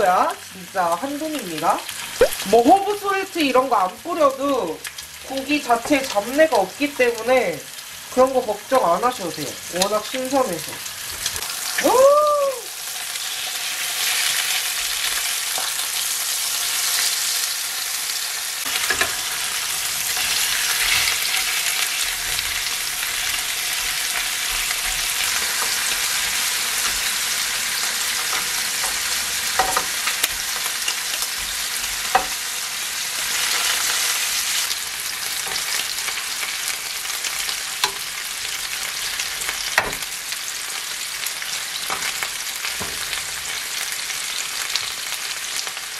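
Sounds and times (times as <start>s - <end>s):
meat sizzling in a grill pan: 0.0s - 45.9s
metal tongs clicking on pan: 28.2s - 31.2s, 37.8s - 38.0s.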